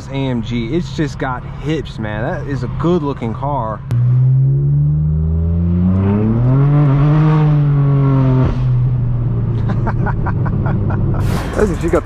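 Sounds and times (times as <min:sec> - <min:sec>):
loud car exhaust under acceleration: 0:02.8 - 0:12.0.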